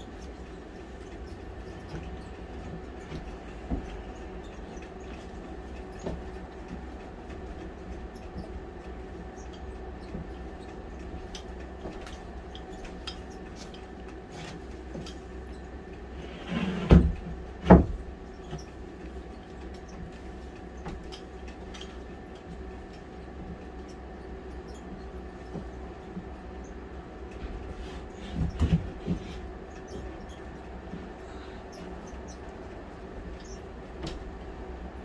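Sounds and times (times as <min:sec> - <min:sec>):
steady low hum: 0:00.0 - 0:35.0
plywood sheet scraping: 0:16.2 - 0:17.2.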